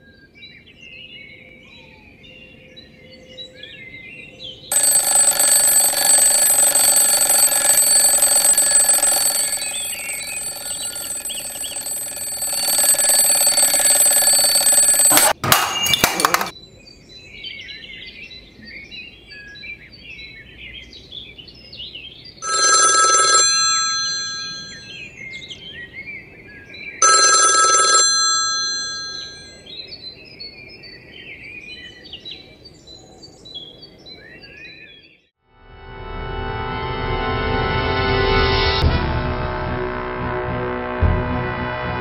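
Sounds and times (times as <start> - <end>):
loud electric bell ringing: 4.7 - 15.4, 22.4 - 25.0, 27.0 - 29.6.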